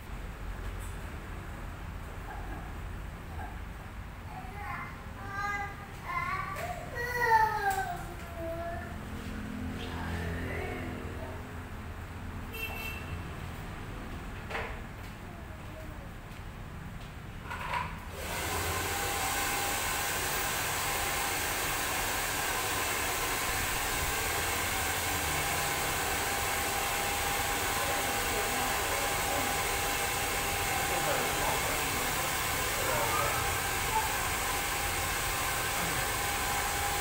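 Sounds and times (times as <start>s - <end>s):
hair dryer running: 18.1s - 37.0s.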